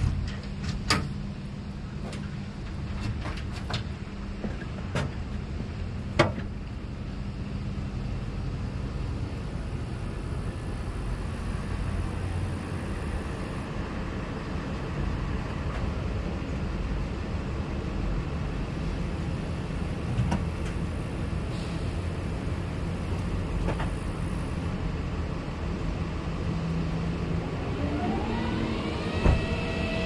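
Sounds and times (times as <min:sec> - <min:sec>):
heavy equipment engine droning: 0:00.0 - 0:30.0.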